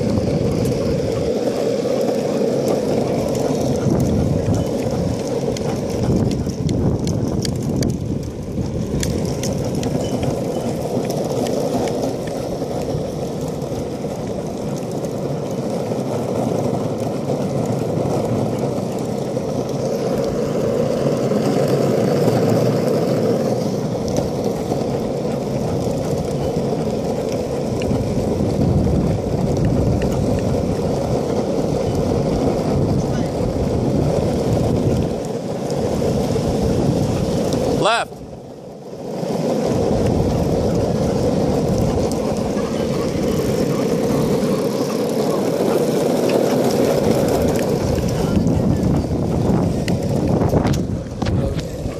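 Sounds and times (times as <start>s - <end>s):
skateboard wheels rolling on asphalt: 0.0s - 51.9s.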